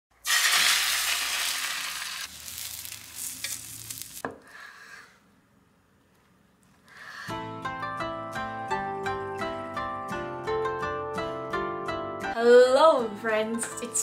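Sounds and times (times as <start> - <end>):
egg sizzling in hot pan: 0.2 - 4.2.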